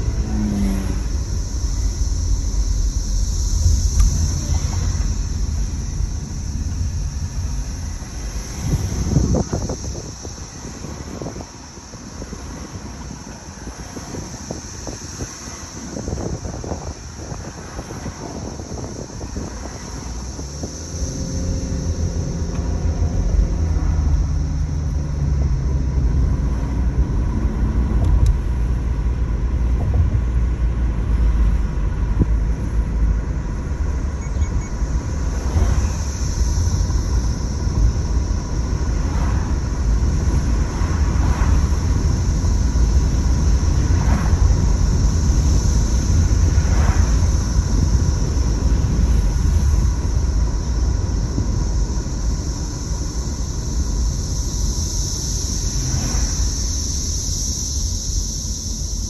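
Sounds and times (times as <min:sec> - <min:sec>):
car engine and road noise: 0:00.0 - 0:59.0
cicadas buzzing: 0:00.0 - 0:59.0.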